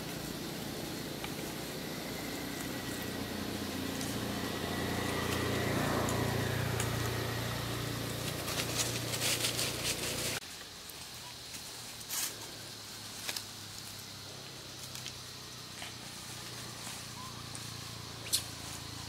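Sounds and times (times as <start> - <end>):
vehicle engine humming: 0.0 - 19.0.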